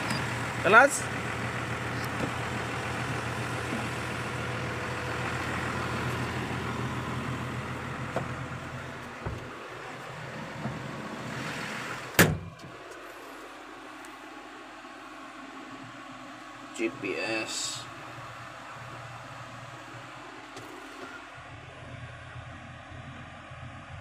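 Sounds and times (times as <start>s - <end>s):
tractor engine idling: 0.0s - 11.2s, 12.5s - 24.0s
cab door thump: 9.2s - 9.5s, 12.1s - 12.7s
knocks around cab: 9.2s - 9.5s, 12.1s - 12.6s.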